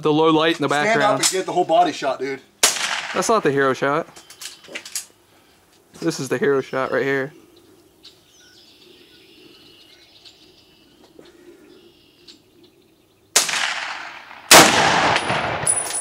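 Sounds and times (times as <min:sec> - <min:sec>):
faint birds chirping: 0:00.0 - 0:02.6, 0:03.2 - 0:13.4
rifle shots ringing out: 0:02.6 - 0:03.4, 0:13.4 - 0:16.0.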